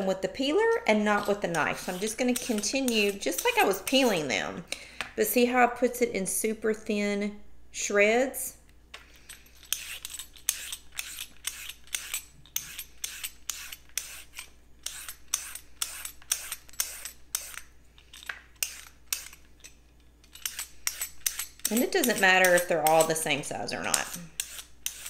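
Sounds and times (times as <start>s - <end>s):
peeler scraping carrot: 0.5s - 4.3s, 9.7s - 19.4s, 20.3s - 25.0s.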